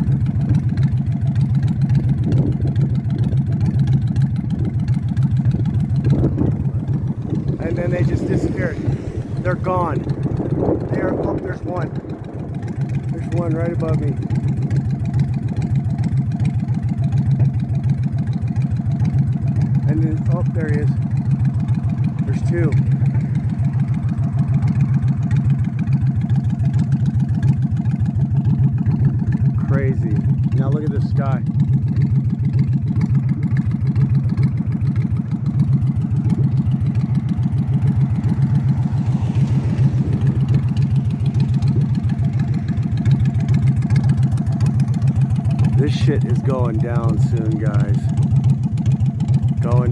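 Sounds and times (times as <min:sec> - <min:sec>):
engine idling: 0:00.0 - 0:49.9.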